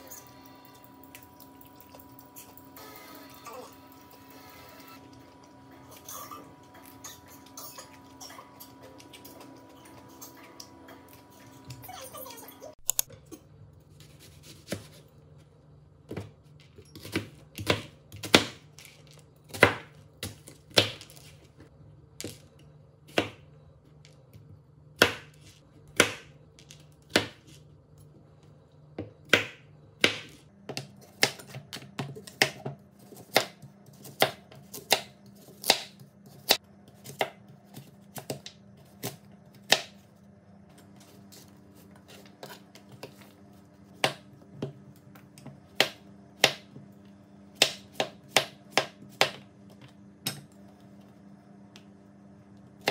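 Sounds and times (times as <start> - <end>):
knife chopping on plastic board: 17.0 - 18.7, 25.0 - 26.3, 29.0 - 40.0, 44.0 - 44.8, 45.4 - 46.8, 47.6 - 49.5.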